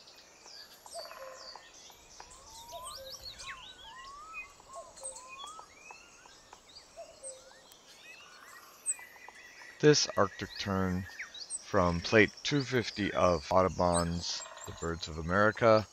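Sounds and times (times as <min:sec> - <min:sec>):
mockingbird singing: 0:00.0 - 0:15.9.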